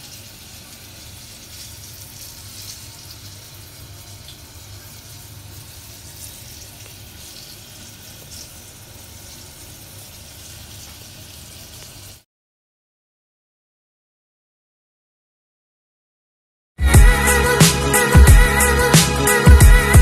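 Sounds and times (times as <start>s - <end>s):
chicken deep-frying in oil: 0.0s - 12.3s.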